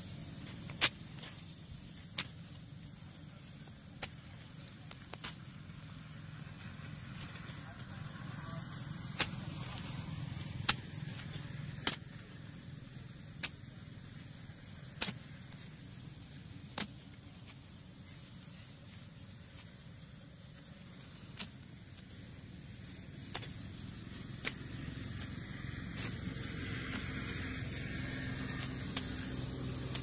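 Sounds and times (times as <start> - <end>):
digging tool chopping into soil: 0.5 - 1.3, 15.0 - 15.4, 16.3 - 17.6.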